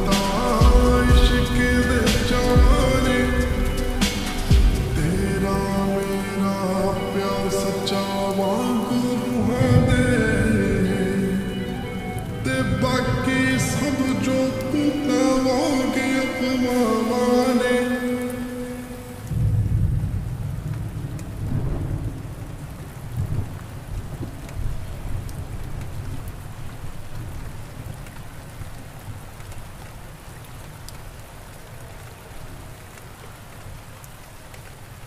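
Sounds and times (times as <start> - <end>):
steady rain: 0.0 - 35.0
rolling thunder: 19.3 - 25.2.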